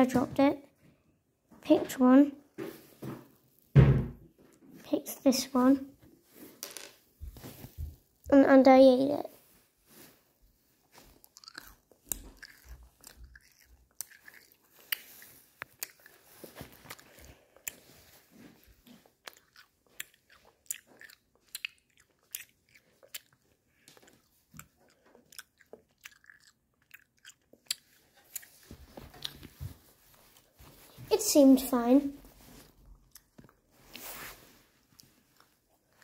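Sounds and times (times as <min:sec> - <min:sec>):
chewing gum crunching: 0:11.2 - 0:29.6, 0:32.8 - 0:33.7
wet mouth clicks: 0:19.2 - 0:23.4.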